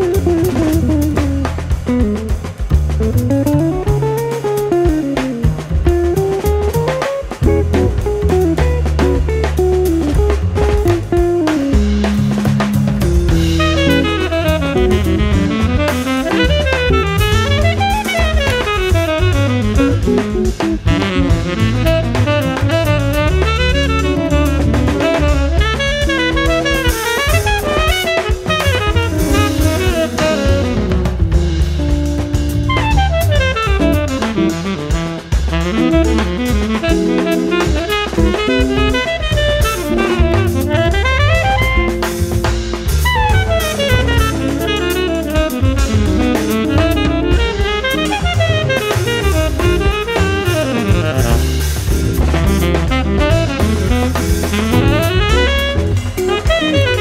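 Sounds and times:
drum kit with cymbals: 0:00.0 - 0:57.0
plucked double bass: 0:00.0 - 0:57.0
tenor saxophone runs: 0:13.3 - 0:57.0.

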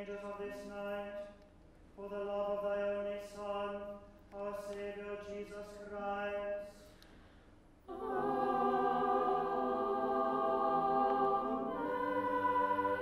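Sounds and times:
choir singing amen: 0:07.9 - 0:13.0
person chanting: 0:07.9 - 0:13.0.

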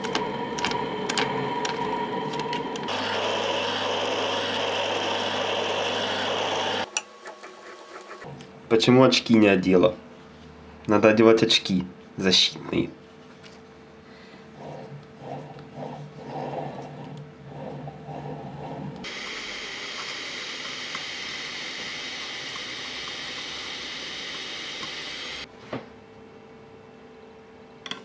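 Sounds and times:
low hum: 0:00.0 - 0:04.9.

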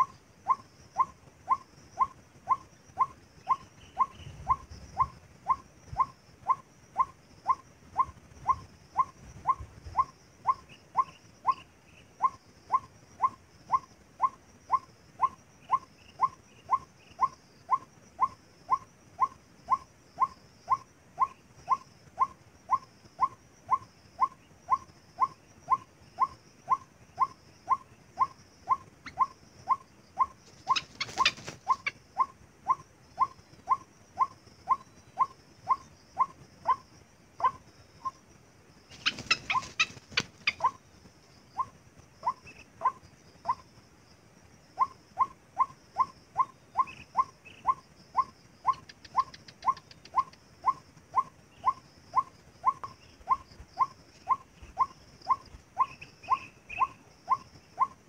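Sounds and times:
waterhen call: 0:17.7 - 0:36.8, 0:38.9 - 0:40.8.

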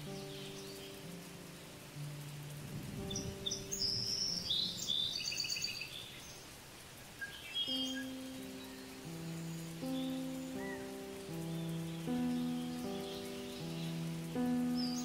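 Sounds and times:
small bird chirping and trilling: 0:00.0 - 0:01.7, 0:03.0 - 0:15.0
soft background music: 0:00.0 - 0:05.9, 0:07.6 - 0:15.0
outdoor hiss: 0:00.0 - 0:15.0.

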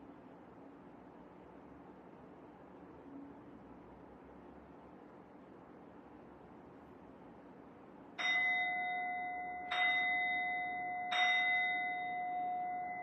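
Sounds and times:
singing bowl struck and ringing: 0:08.2 - 0:13.0.

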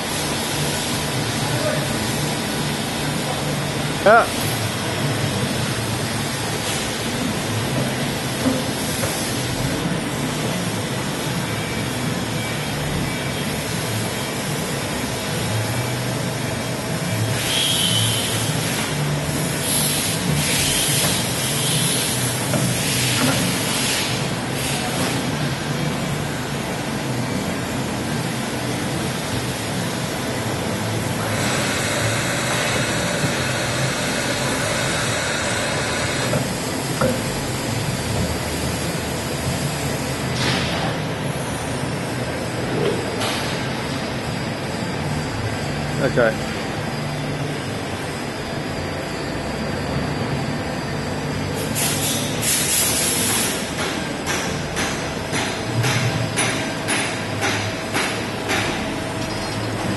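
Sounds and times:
machinery humming: 0:00.0 - 0:59.9
loud hiss: 0:51.6 - 0:53.6.

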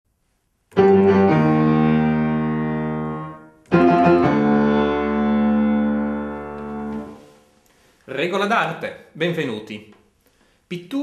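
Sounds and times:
quick piano notes: 0:00.7 - 0:07.3
piano chords: 0:00.7 - 0:07.5.

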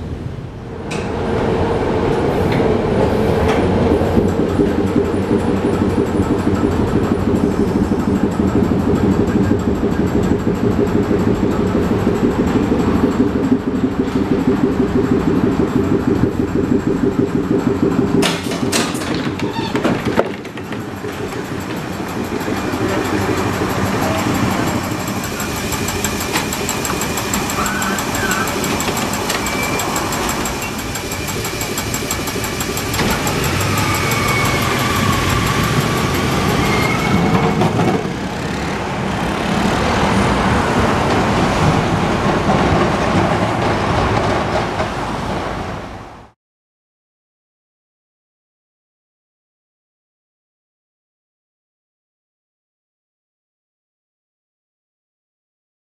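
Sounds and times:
streetcar humming: 0:00.0 - 0:46.4
street traffic noise: 0:18.2 - 0:46.3.

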